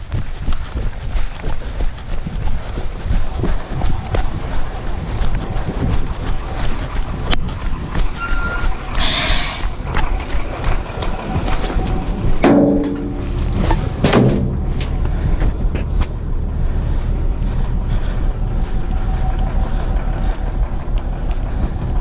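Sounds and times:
wind rumble on microphone: 0.0 - 22.0
garbage truck diesel engine running: 2.0 - 22.0
air brakes hissing: 8.3 - 9.8.

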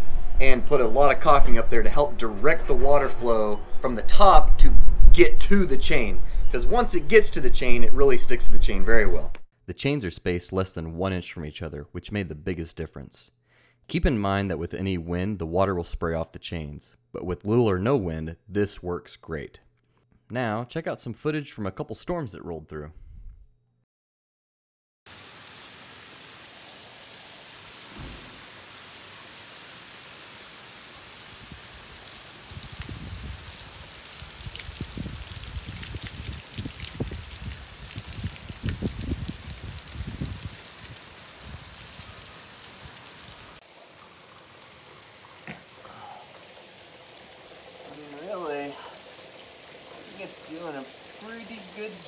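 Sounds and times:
steady rain falling: 25.1 - 52.0
water streaming down rain chain: 25.1 - 52.0
low thump: 27.9 - 28.4
sharp knock: 28.0 - 28.4.

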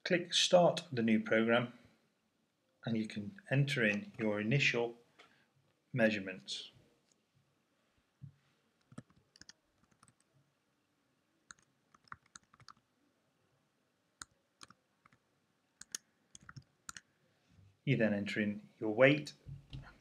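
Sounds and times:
keyboard keys clicking: 15.8 - 17.0.

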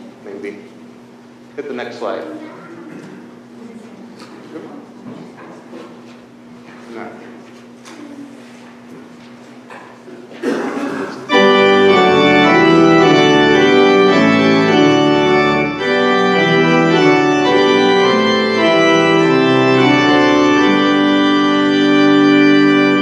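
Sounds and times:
church organ playing hymn: 10.8 - 23.0.

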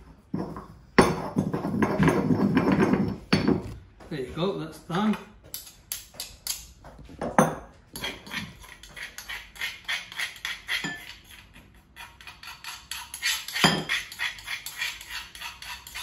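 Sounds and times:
metal spoon scraping a stone mortar: 0.0 - 3.3, 7.9 - 16.0
dull mortar knocks: 0.3 - 4.1.

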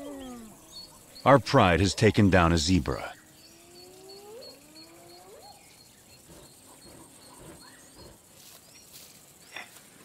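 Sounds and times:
lion cub whining: 0.0 - 1.0, 3.7 - 8.2.

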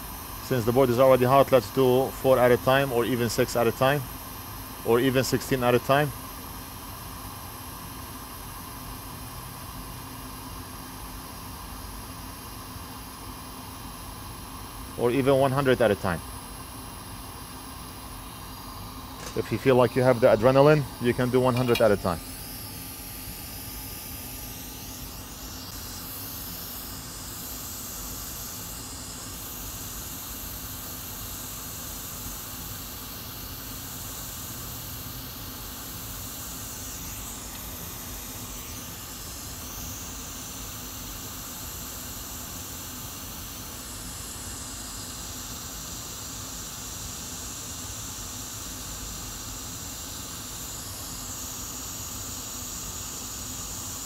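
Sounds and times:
hot air hissing: 0.0 - 6.4, 10.4 - 45.6.

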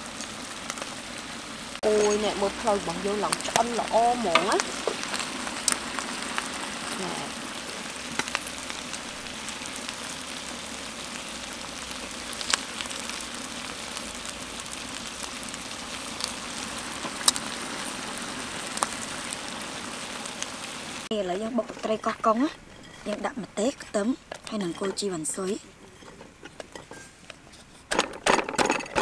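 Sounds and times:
pot sizzling: 0.0 - 27.9
metal tongs clinking on pot: 1.8 - 5.2.

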